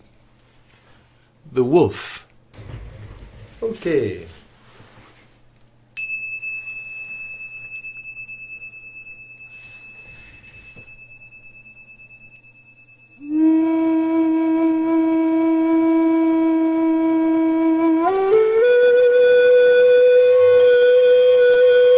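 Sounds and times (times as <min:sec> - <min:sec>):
tingsha cymbals ringing: 0:05.9 - 0:13.9, 0:20.6 - 0:21.9
flute holding low note: 0:13.2 - 0:21.9.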